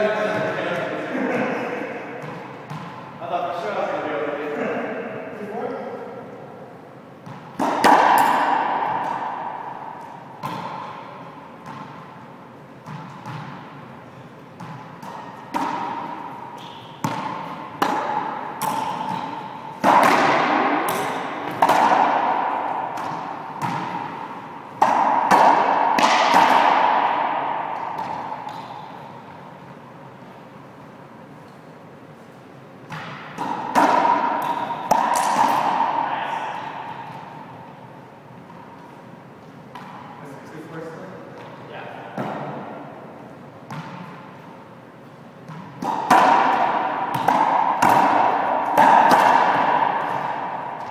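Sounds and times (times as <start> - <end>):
racquetball smacks echoing: 0.2 - 3.1, 7.2 - 13.8, 14.5 - 29.8, 32.8 - 38.9, 39.5 - 40.4, 41.4 - 44.4, 45.4 - 50.9.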